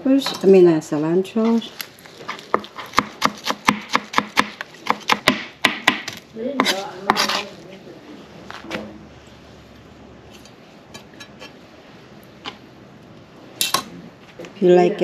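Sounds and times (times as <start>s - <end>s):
knife chopping herbs on plastic board: 2.2s - 7.5s
knife scraping across board: 6.6s - 7.6s.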